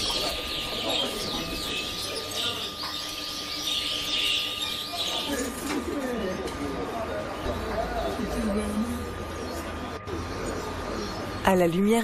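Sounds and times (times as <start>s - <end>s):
finches chirping and twittering: 0.0s - 5.6s, 9.3s - 12.0s.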